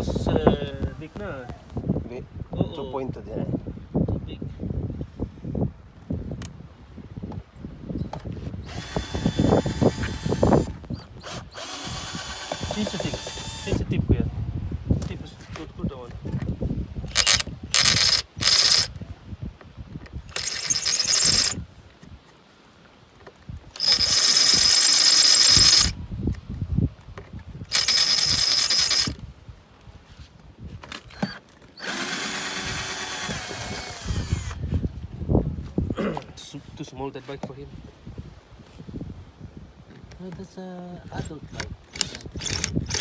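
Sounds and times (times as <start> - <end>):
cordless drill boring through metal: 8.6 - 13.9, 17.1 - 19.0, 20.3 - 21.6, 23.8 - 26.0, 27.7 - 29.2, 31.1 - 34.6, 41.6 - 43.0.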